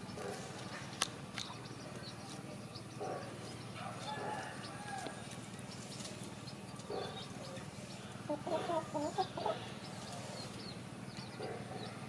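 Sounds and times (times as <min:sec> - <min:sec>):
chicken clucking: 0:05.7 - 0:11.9.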